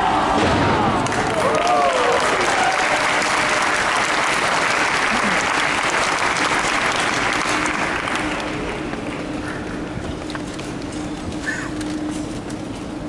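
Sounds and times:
audience applauding: 1.0 - 9.3.

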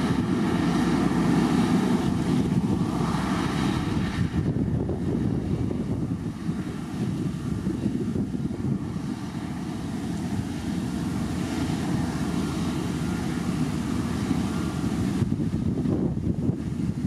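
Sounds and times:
wind buffeting microphone: 0.0 - 17.0
grader diesel engine under load: 6.5 - 16.0.

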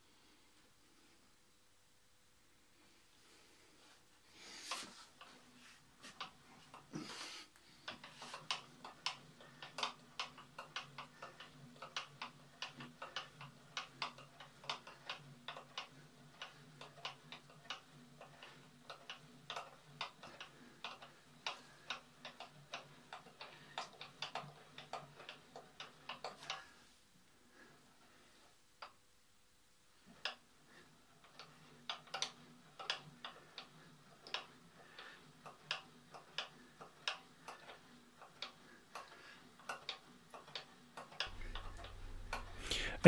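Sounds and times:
crank and gearing clicking: 7.8 - 26.8, 31.2 - 43.0
faint low hum: 41.3 - 43.0.

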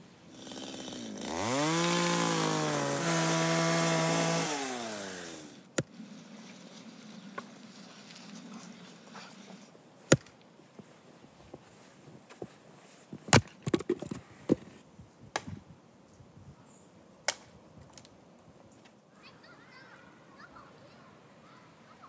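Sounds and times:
axe chopping firewood: 10.1 - 10.4.

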